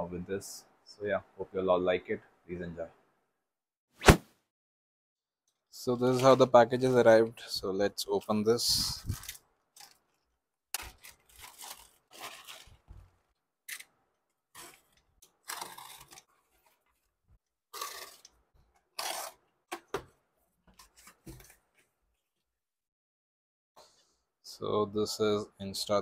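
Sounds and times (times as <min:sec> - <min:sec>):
plastic bag crinkling: 0:10.8 - 0:12.9.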